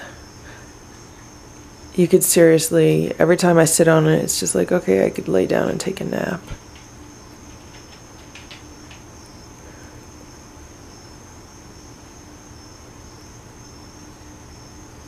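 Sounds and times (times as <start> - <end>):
faint high-pitched whine: 0.0 - 15.0
room noise hiss: 0.0 - 15.0
faint clicks: 7.5 - 9.1.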